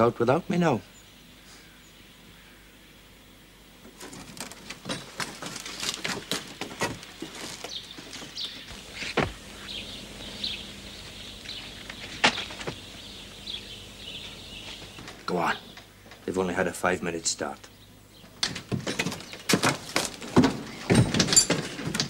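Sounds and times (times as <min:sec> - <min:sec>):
small birds chirping: 0:00.0 - 0:03.2, 0:05.4 - 0:18.4
people clambering through shrubs: 0:03.8 - 0:16.7, 0:17.4 - 0:22.0.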